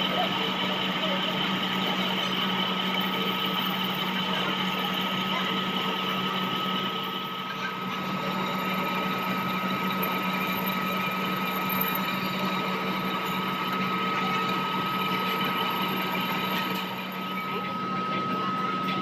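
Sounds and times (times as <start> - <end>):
metal lathe running: 0.0 - 19.0.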